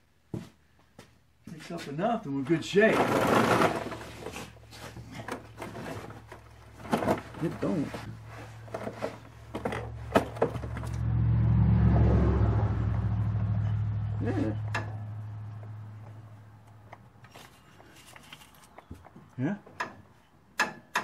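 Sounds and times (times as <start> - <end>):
passing vehicle engine hum: 9.9 - 17.3.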